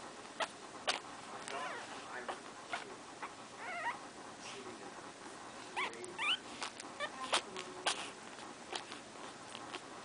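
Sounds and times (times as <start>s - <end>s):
puppies whimpering: 1.4s - 4.1s, 5.6s - 8.1s.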